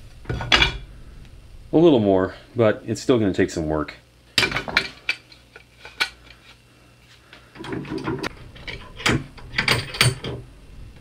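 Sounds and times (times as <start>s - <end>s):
metal rattling: 7.6s - 10.4s.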